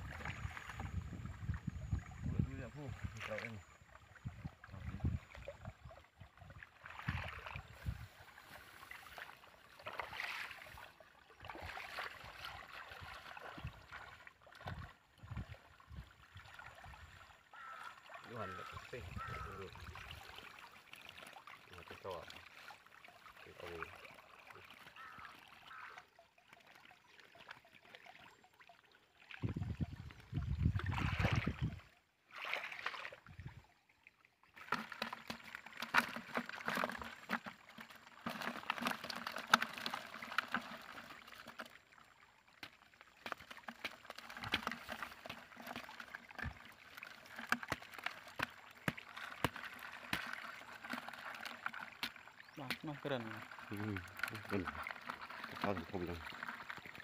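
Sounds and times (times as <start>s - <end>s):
fish and water splashing into bucket: 0.0s - 57.0s.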